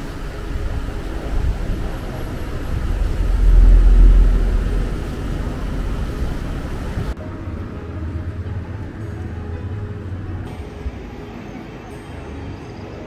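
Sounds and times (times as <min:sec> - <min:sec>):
wind buffeting microphone: 0:00.0 - 0:07.2.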